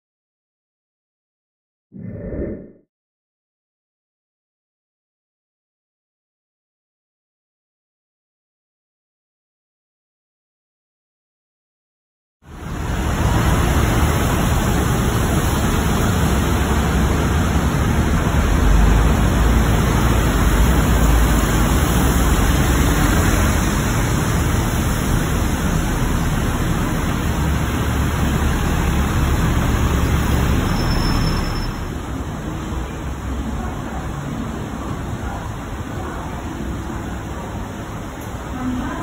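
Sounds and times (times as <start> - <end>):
bus engines rumbling: 12.5 - 39.0.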